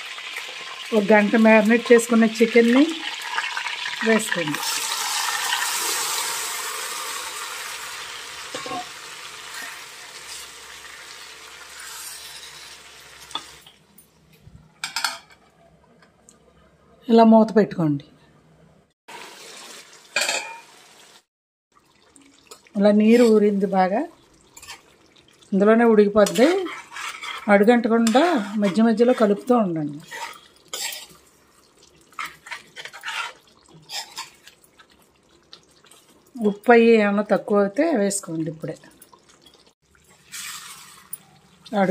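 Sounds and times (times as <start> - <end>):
chicken sizzling in hot oil: 0.0 - 13.7, 19.1 - 36.5, 39.1 - 41.9
metal spoon scraping in curry: 11.7 - 13.5, 26.2 - 31.2, 32.1 - 34.4, 40.3 - 41.2
wooden spatula stirring: 26.3 - 36.2.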